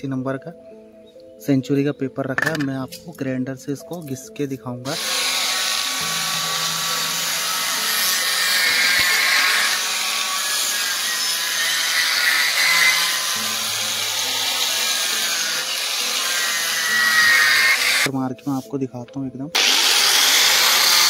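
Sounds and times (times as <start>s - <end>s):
angle grinder sanding wood: 4.9s - 18.1s, 19.6s - 21.0s.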